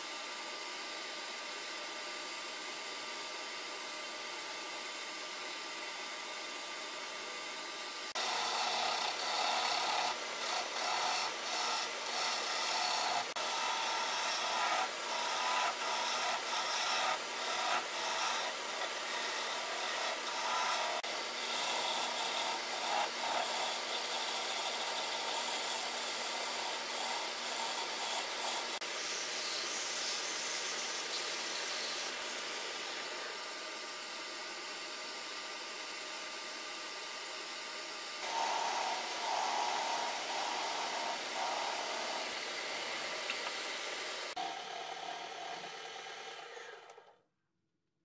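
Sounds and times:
lathe motor running: 7.9s - 36.4s, 37.0s - 47.1s
turning tool scraping wood: 8.1s - 33.2s, 38.2s - 47.1s
sanding spinning wood: 8.1s - 33.9s, 38.2s - 46.8s.

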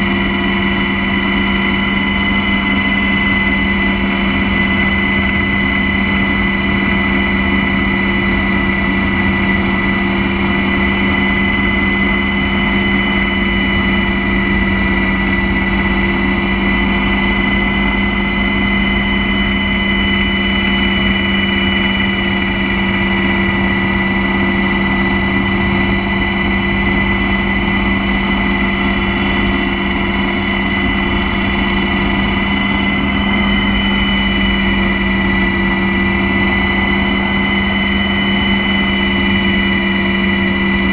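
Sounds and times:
aircraft engine drone: 0.0s - 40.9s
high engine whine: 0.0s - 40.9s.

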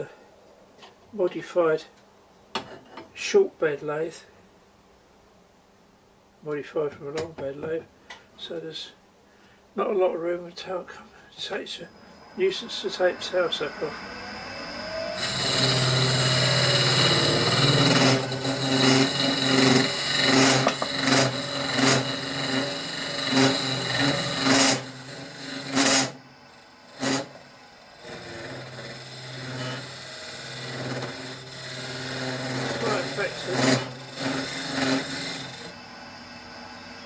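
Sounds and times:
wood lathe humming: 11.9s - 37.0s
cutter scraping wood: 13.0s - 26.2s, 26.9s - 35.8s.

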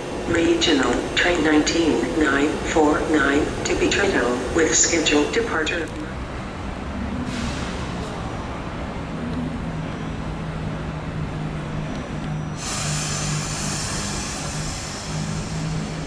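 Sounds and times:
train electric hum: 0.0s - 16.0s
loud hiss: 12.6s - 16.0s.

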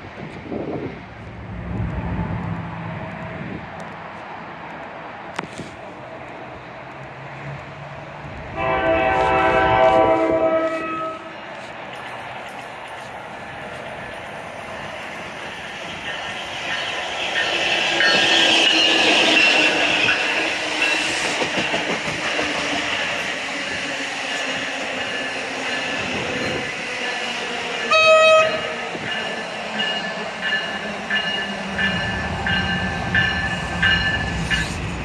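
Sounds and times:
low hum of train: 0.0s - 35.0s
train rolling past: 0.0s - 35.0s
train horn blast: 8.5s - 11.4s, 27.9s - 28.8s.

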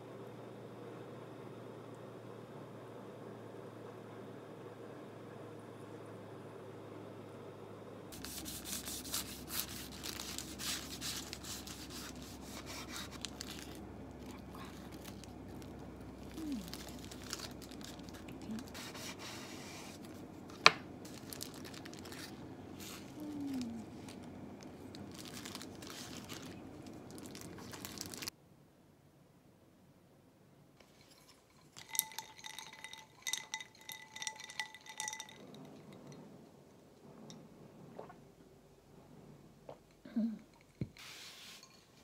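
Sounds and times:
paper crinkling and rustling: 8.2s - 28.3s.

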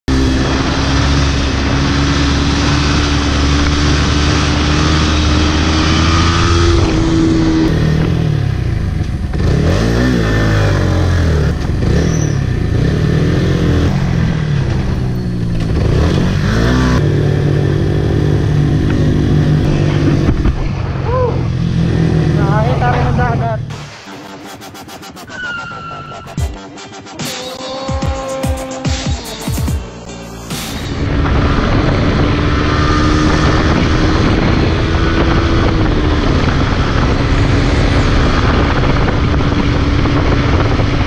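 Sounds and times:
motorcycle engine revving: 0.0s - 41.0s
wind rush: 30.4s - 41.0s.

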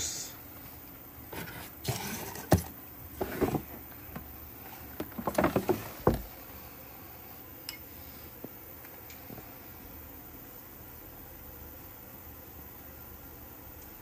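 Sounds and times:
plastic tub scraping and clattering: 1.3s - 3.8s, 5.0s - 6.3s.

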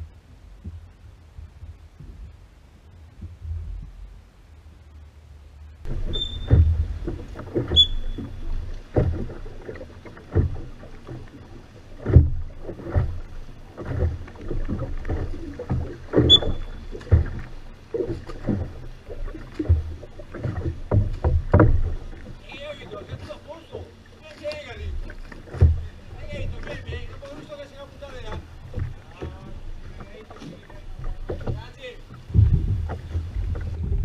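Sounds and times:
oar strokes splashing: 0.0s - 34.0s
short high squeaks: 6.0s - 6.8s, 7.7s - 8.5s, 16.2s - 16.9s.

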